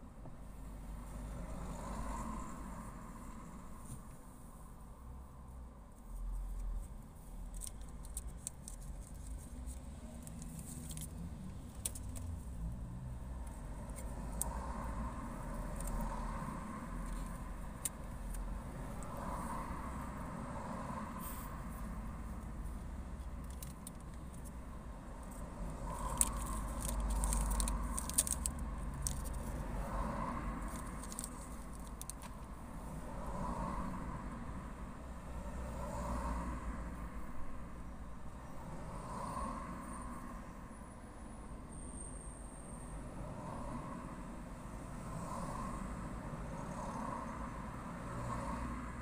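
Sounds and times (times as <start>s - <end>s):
cars passing: 0.0s - 49.0s
small clicks and rattles: 6.6s - 12.5s, 23.2s - 24.5s, 26.0s - 29.6s, 30.6s - 32.5s.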